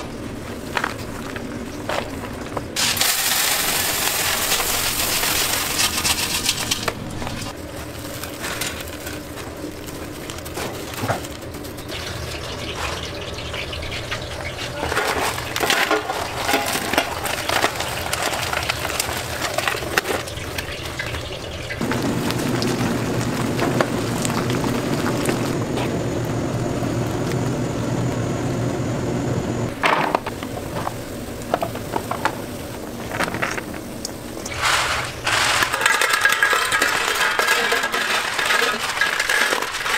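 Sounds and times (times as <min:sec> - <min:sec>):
crunchy rustling of fried food: 0:00.1 - 0:26.1, 0:30.8 - 0:39.9
metal pans clinking: 0:12.0 - 0:21.9, 0:34.5 - 0:39.9
steady machine hum: 0:21.3 - 0:33.1.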